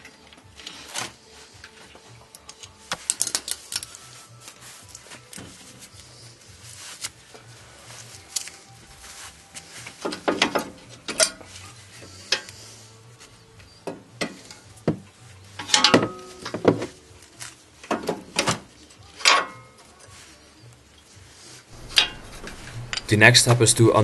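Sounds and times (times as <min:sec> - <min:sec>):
metal clinks and scrapes: 0:01.6 - 0:05.8, 0:10.1 - 0:12.6.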